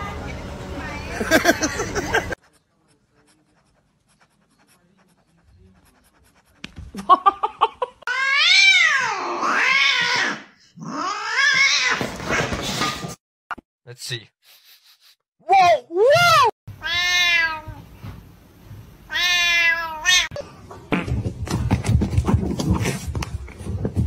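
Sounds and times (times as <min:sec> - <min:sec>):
cat yowling: 0:08.1 - 0:12.0.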